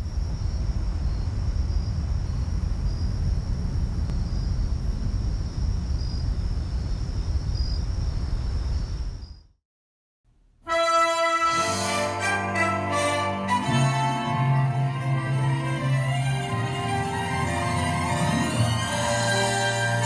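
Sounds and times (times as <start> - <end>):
low rumble: 0.0 - 9.2
high insect trill: 0.0 - 9.5
insect chirps: 0.0 - 9.6.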